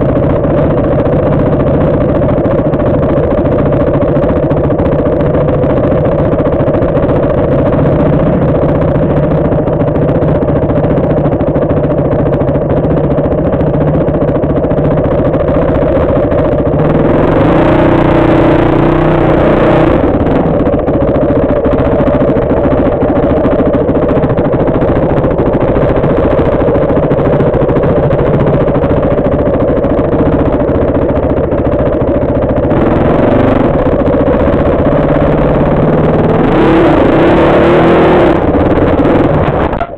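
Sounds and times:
dirt bike engine revving: 15.0s - 31.1s, 32.5s - 39.9s.

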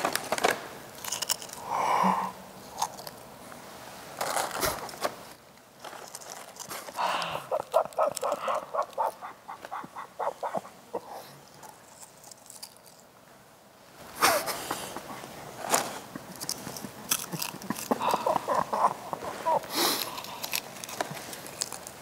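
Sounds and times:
chewing crunchy chips: 0.9s - 1.7s, 2.7s - 3.2s, 5.9s - 13.1s, 15.8s - 22.0s.

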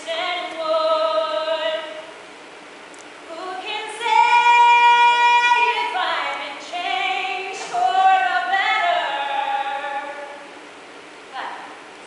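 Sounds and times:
woman singing solo: 3.3s - 10.4s.

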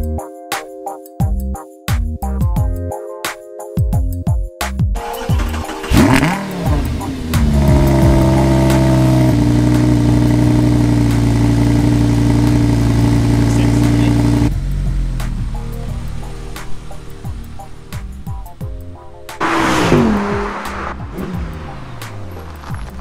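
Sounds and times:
car engine starting and idling: 5.0s - 23.0s.

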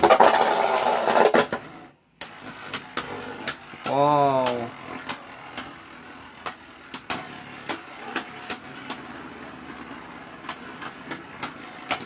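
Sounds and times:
spinning tops whirring: 0.0s - 12.0s.

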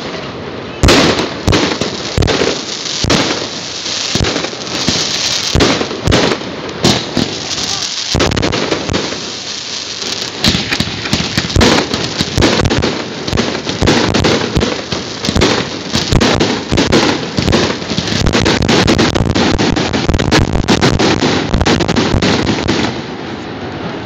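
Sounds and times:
fireworks bangs and crackling: 0.0s - 24.0s.

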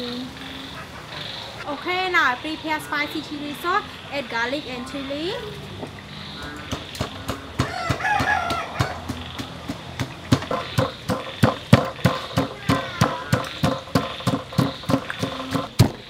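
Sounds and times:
chicken calling: 0.0s - 15.8s
pestle pounding in stone mortar: 6.7s - 16.0s.

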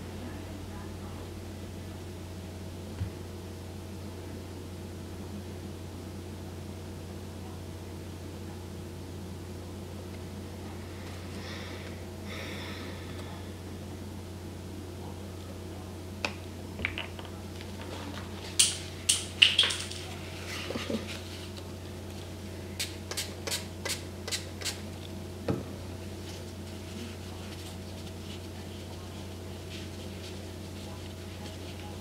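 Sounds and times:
steady low hum: 0.0s - 32.0s
knock on a table: 25.5s - 25.7s.

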